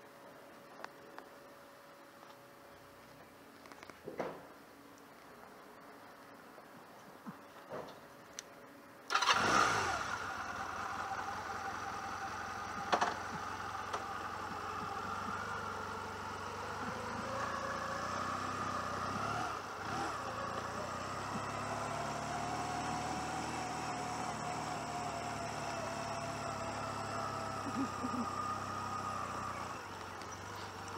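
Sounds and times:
motorcycle engine running: 9.2 - 30.9.

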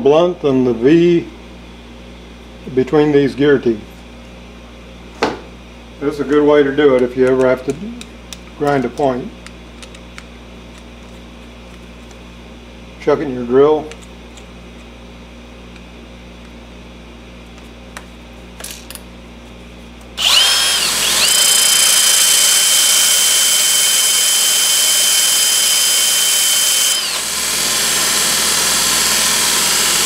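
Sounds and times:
belt grinder hissing: 20.2 - 30.0
drill chuck clicks: 20.2 - 30.0
drill whining: 20.2 - 30.0.

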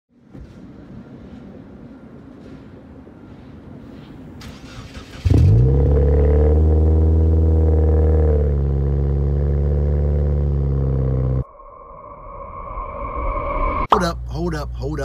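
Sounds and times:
car engine starting and idling: 4.4 - 11.4.

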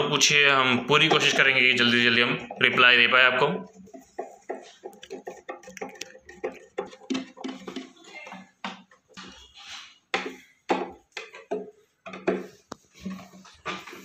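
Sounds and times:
screwdriver clicking and scraping: 3.8 - 7.7.

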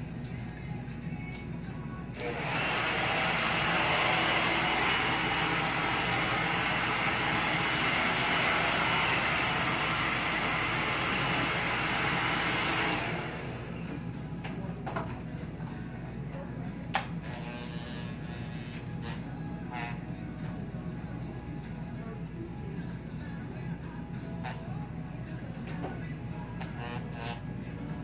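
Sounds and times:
hair dryer blowing: 2.1 - 14.1.

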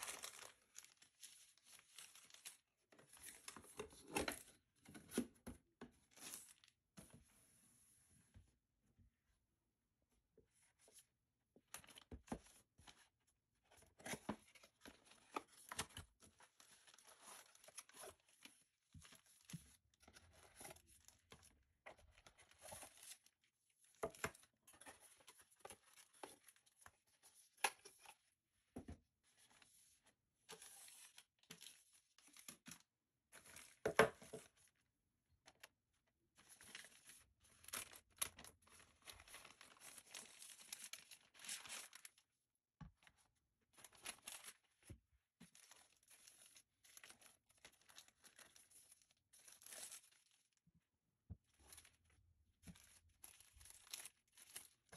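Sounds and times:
plastic bags crinkling: 0.0 - 2.6.

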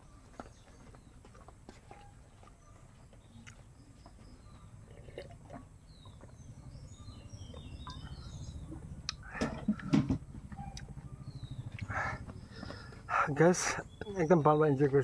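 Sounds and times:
small birds chirping: 0.0 - 15.0
low steady rumble: 4.6 - 14.2.

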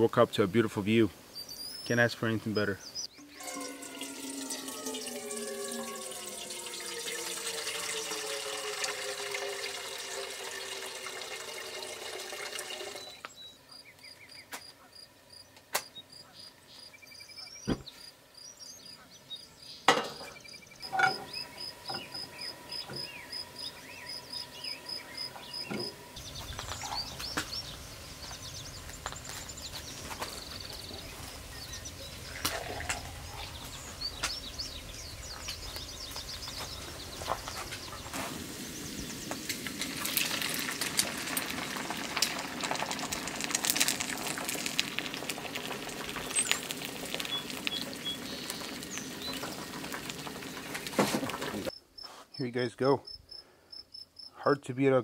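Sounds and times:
water pouring into metal pot: 3.2 - 13.2, 26.2 - 51.7
steady hiss: 21.7 - 52.2.

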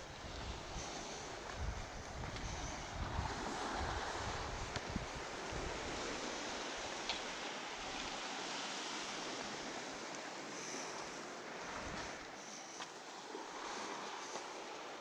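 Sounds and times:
wind buffeting microphone: 0.0 - 7.0
sea surf hissing: 0.0 - 15.0.

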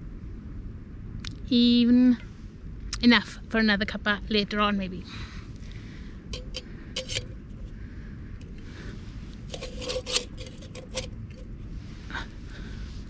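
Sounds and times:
steady low background noise: 0.0 - 13.0
faint metallic ring: 6.3 - 7.8
metal pot scraping on stove: 6.4 - 7.7, 8.5 - 11.5.

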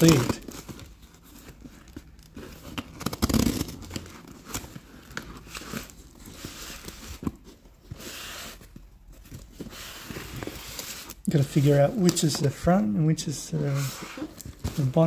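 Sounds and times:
packing tape and cardboard tearing: 0.0 - 7.4
cardboard box crinkling: 0.0 - 12.6.

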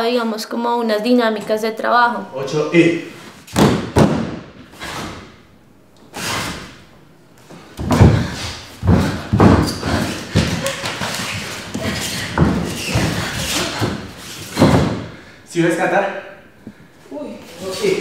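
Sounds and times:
bare feet stamping on floor: 3.5 - 4.6, 7.5 - 15.2.

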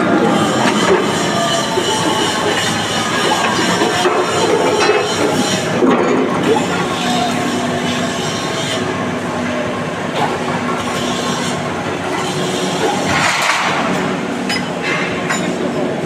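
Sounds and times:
machinery hum: 0.0 - 16.0.

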